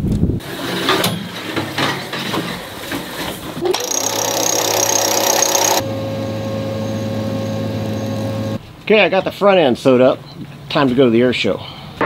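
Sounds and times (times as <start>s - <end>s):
small motor humming with high whine: 3.7s - 8.6s.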